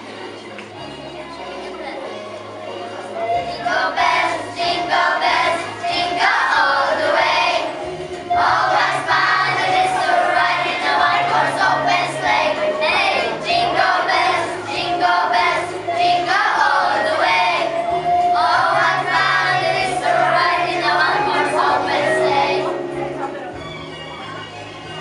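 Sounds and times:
musical accompaniment: 0.0 - 25.0
children singing in unison: 3.4 - 22.9.

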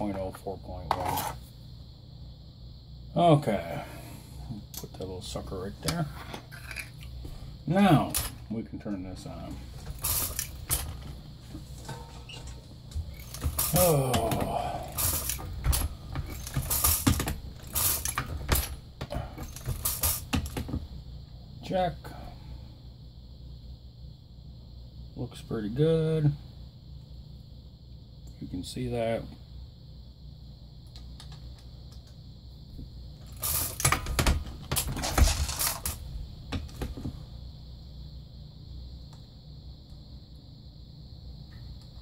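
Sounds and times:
brass cases clinking and rattling: 15.0 - 18.8.

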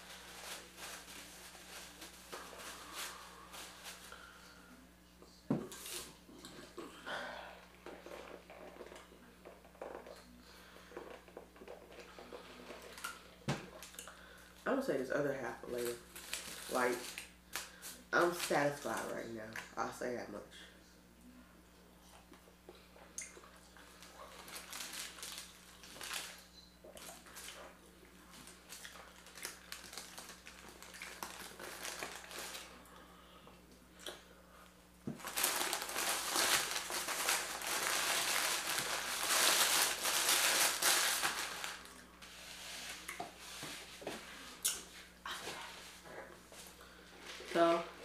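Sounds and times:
paper wrapper crinkling: 0.0 - 4.3, 15.7 - 19.2, 23.9 - 32.8, 35.2 - 43.1.

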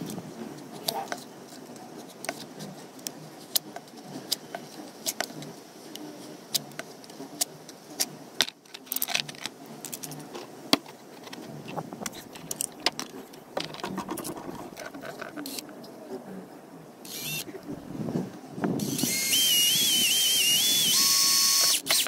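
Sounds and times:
hard plastic clicking and scraping: 0.0 - 15.8
plastic set down on concrete: 12.8 - 15.4.

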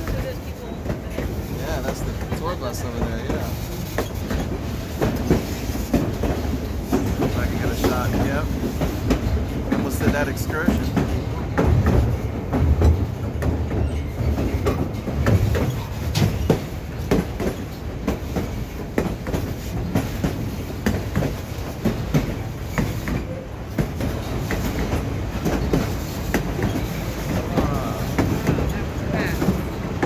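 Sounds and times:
train car rumbling: 0.0 - 30.0
wheels clacking on track: 0.0 - 30.0.

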